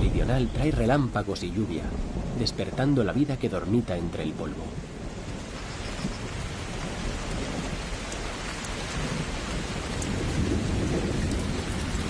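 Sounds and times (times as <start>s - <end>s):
rain falling on water: 0.0s - 12.0s
thunder rumble: 0.0s - 12.0s.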